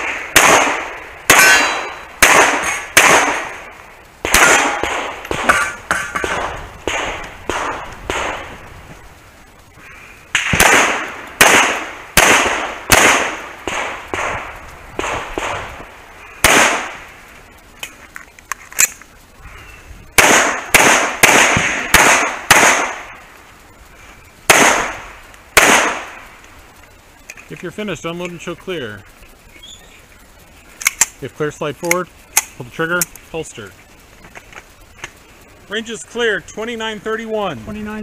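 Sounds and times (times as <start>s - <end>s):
pistol shots: 0.0s - 3.6s, 4.2s - 8.5s, 10.4s - 15.8s, 16.4s - 17.0s, 20.2s - 23.1s, 24.5s - 25.0s, 25.6s - 26.2s.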